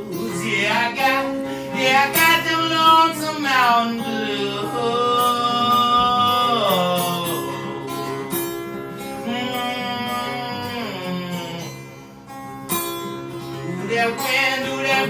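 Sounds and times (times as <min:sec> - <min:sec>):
acoustic guitar strumming: 0:00.0 - 0:15.0
man singing a held note: 0:01.7 - 0:08.4.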